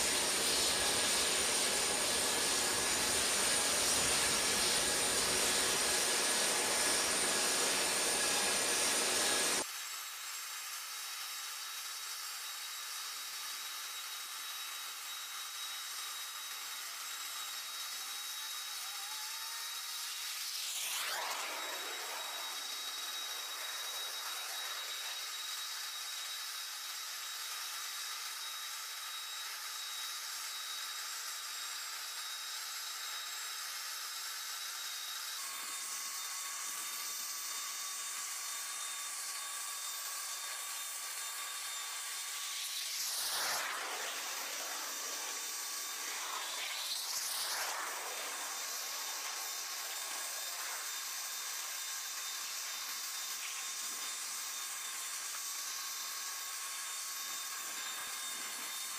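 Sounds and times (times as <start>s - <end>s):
turbine machinery whine: 0.0s - 9.6s, 14.9s - 27.6s, 35.0s - 58.9s
rushing swells: 42.5s - 51.2s.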